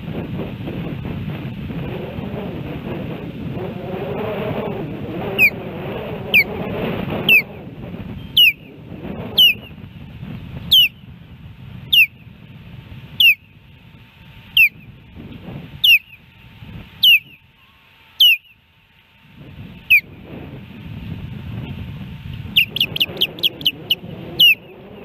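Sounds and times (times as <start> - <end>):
osprey alarm whistles: 5.3 - 5.6, 8.2 - 9.8, 11.9 - 12.2, 13.2 - 13.6, 14.5 - 14.9, 15.8 - 16.3, 17.0 - 18.6, 19.8 - 20.2, 22.5 - 24.7.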